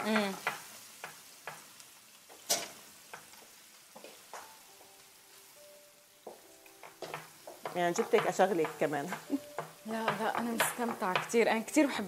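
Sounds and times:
mushrooms sizzling in a pan: 0.0 - 12.0
utensil clicking and tapping: 6.8 - 11.4.

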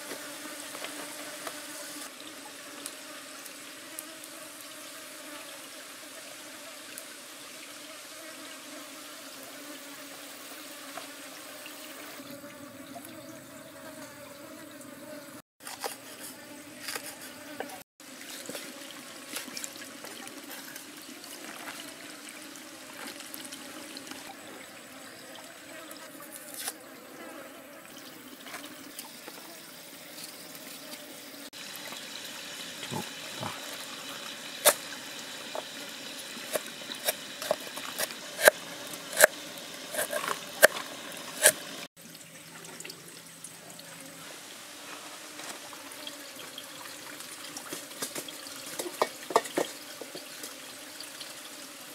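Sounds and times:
stream water trickling: 18.0 - 26.0, 31.5 - 44.7, 45.6 - 51.9.

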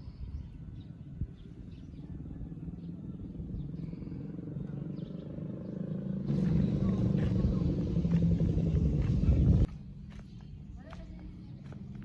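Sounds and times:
vehicle engine drone: 2.2 - 9.8.

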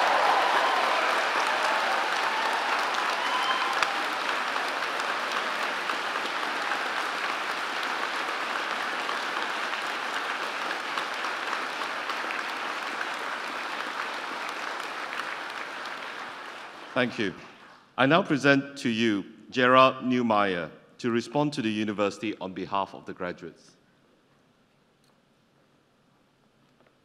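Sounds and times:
audience applauding: 0.0 - 17.8.

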